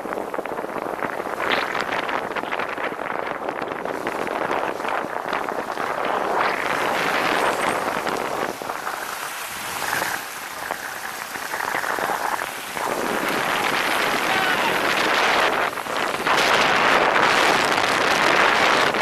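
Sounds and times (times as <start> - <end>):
wind rushing over microphone: 0.0 - 19.0
tyres hissing on wet road: 5.6 - 19.0.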